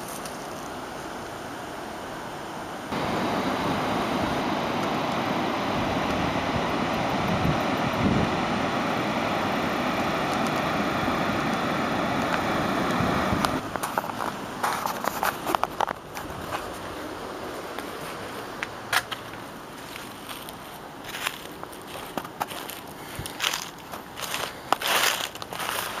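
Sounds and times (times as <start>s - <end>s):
water rushing over dam spillway: 0.7s - 18.9s
footsteps: 17.6s - 26.0s.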